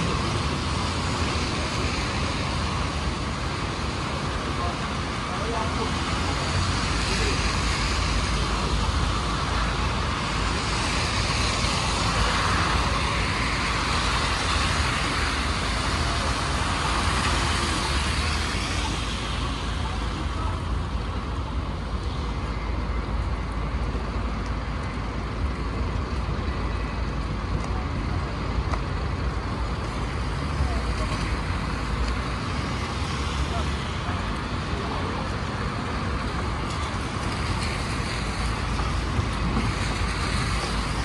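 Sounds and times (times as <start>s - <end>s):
traffic rumble: 0.0s - 41.0s.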